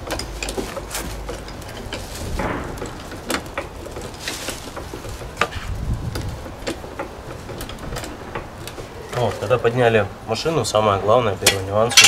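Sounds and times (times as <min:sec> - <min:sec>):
car jack clicking and creaking: 0:00.0 - 0:12.0.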